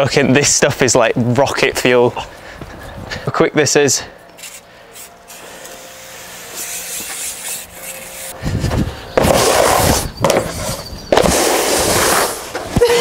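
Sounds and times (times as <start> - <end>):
snowboard scraping on matting: 6.7 - 12.8.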